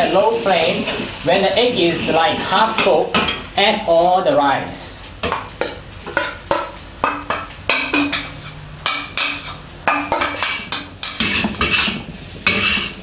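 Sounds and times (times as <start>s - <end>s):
light sizzle: 0.0s - 13.0s
metal spatula clanking on wok: 5.2s - 13.0s.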